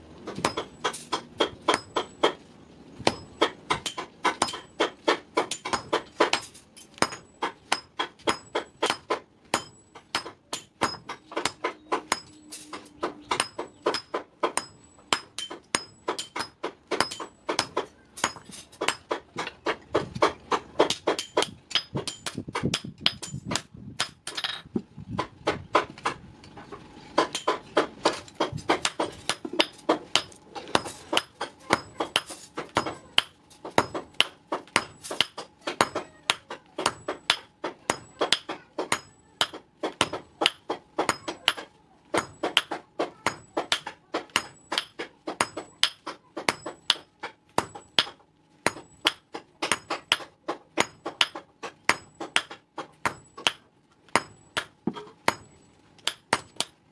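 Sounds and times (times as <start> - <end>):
hammer ringing on anvil: 5.5 - 19.1, 42.2 - 48.1, 51.9 - 56.5.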